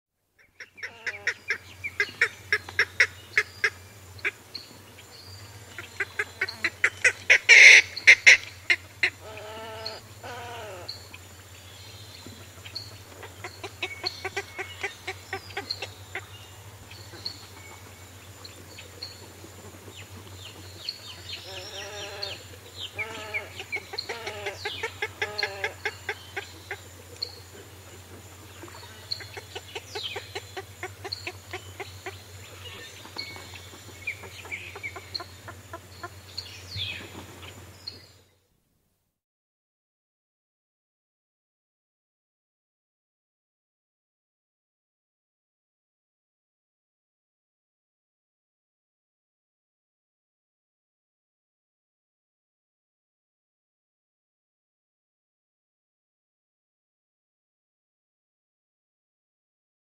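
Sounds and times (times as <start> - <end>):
herons calling sharply: 0.4 - 4.4, 5.8 - 10.9
distant birds calling: 0.4 - 38.2.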